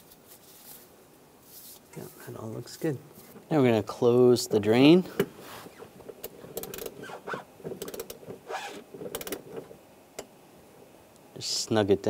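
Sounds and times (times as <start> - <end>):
hand ratchet clicking: 5.2 - 9.7.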